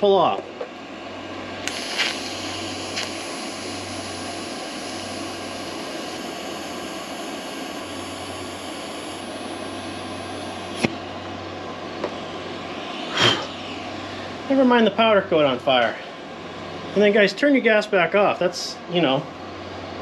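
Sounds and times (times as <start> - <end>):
faint high whine: 0.0 - 20.0
sharp snap of welding arc: 1.6 - 11.0
welding arc hissing: 1.6 - 11.2, 11.8 - 15.6.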